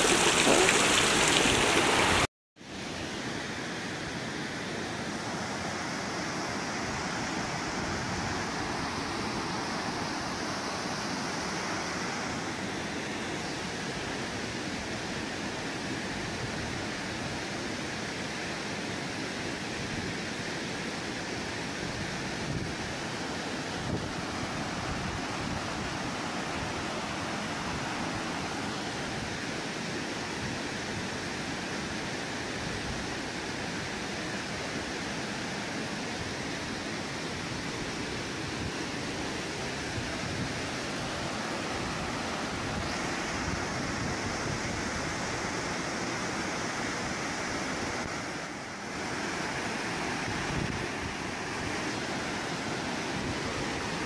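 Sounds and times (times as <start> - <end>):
waterfall rushing: 0.0 - 2.3.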